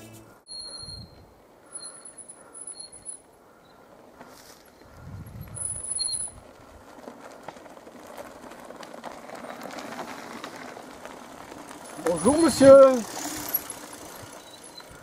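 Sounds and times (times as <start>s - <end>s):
bike tyres crunching over gravel: 3.5s - 15.0s.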